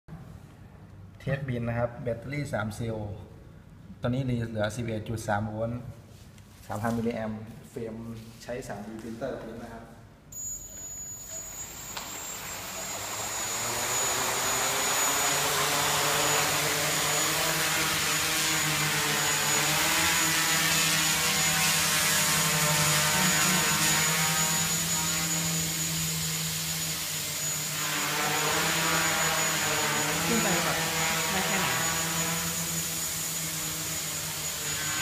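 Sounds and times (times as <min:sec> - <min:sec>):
quadcopter propellers buzzing: 0:11.4 - 0:35.0.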